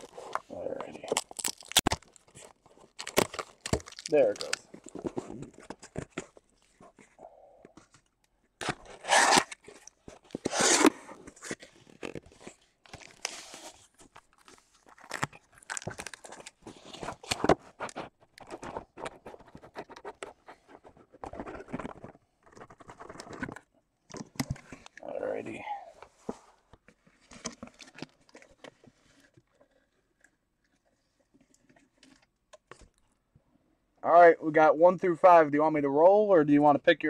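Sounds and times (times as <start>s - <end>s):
cardboard and tape tearing: 0.0s - 6.4s, 8.6s - 23.6s
shrink-wrap crinkling: 0.0s - 6.6s, 8.8s - 19.9s
cardboard scraping: 0.0s - 7.2s, 8.6s - 23.6s.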